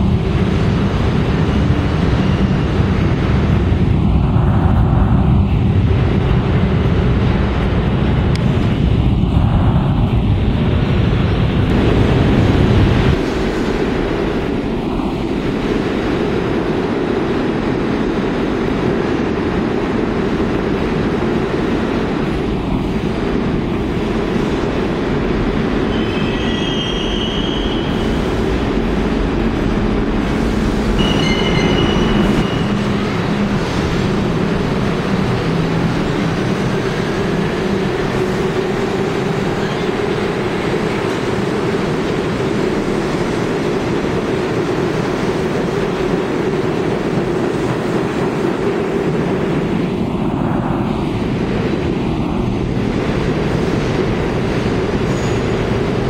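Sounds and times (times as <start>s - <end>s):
subway train wheels rumbling: 0.0s - 56.0s
high wheel squeals: 25.8s - 28.2s, 31.0s - 33.0s.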